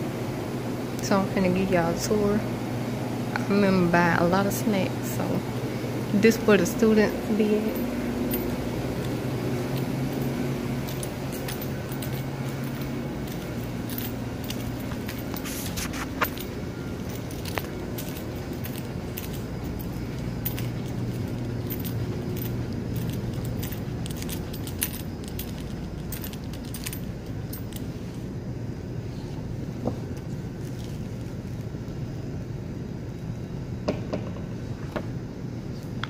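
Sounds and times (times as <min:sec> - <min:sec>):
steady low rumble: 0:03.7 - 0:33.7
handling clicks and jingles: 0:06.3 - 0:28.3, 0:30.0 - 0:31.9.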